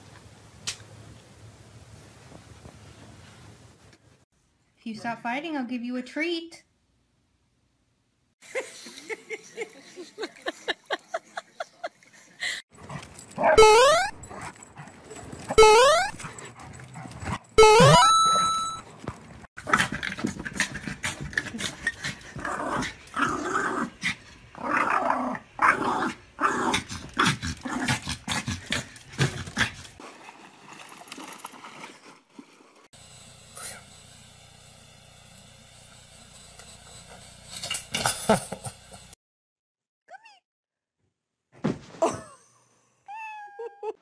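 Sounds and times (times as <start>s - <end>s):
dogs barking and growling: 12.8s - 17.6s, 19.2s - 30.0s.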